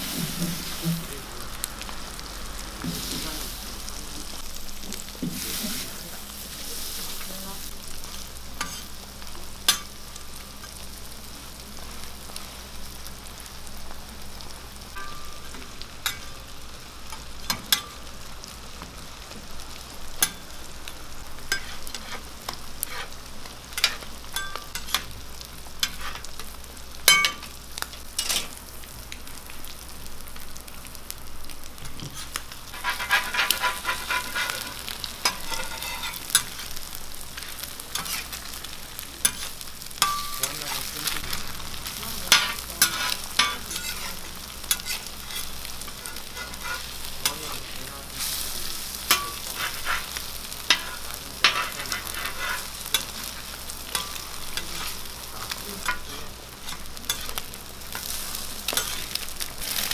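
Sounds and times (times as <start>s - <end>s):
food sizzling on griddle: 0.0s - 59.9s
metal spatula scraping griddle: 8.1s - 9.0s, 21.4s - 25.1s, 25.8s - 27.4s, 28.2s - 28.6s, 31.7s - 41.4s, 42.0s - 59.9s.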